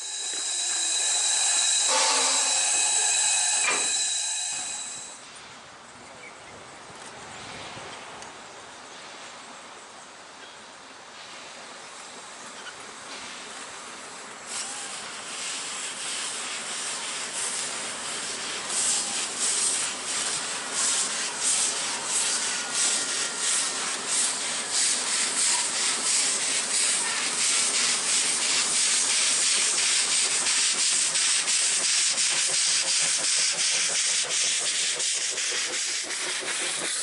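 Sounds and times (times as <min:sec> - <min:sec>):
steam hissing: 0:00.0 - 0:05.4, 0:13.1 - 0:37.0
steam locomotive exhaust chuffs: 0:00.0 - 0:05.4, 0:13.0 - 0:37.0.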